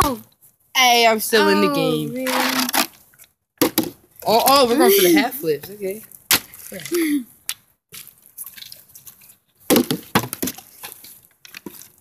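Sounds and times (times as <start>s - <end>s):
plastic bottle knocking on pavement: 3.6s - 4.0s, 9.7s - 10.6s.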